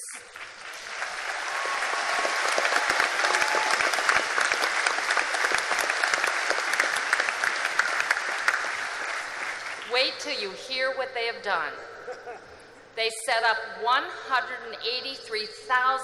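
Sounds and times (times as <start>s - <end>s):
large crowd applauding: 0.0s - 9.9s.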